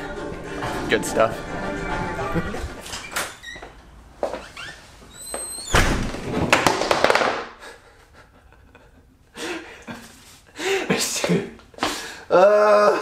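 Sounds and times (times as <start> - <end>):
door shutting: 1.9 - 3.9, 4.5 - 6.6
skateboard crashing to floor: 5.9 - 7.5.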